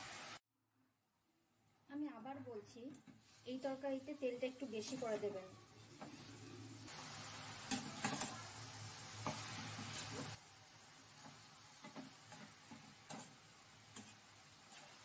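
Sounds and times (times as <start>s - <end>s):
metal spatula scraping pan: 11.8s - 15.0s.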